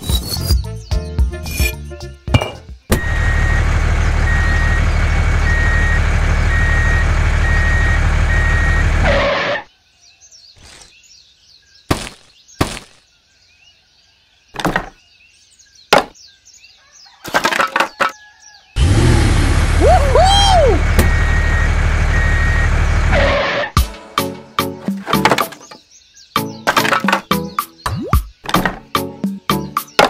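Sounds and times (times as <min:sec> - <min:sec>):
small motor running: 0:03.0 - 0:09.6
birds chirping faintly: 0:09.7 - 0:18.8, 0:24.2 - 0:30.0.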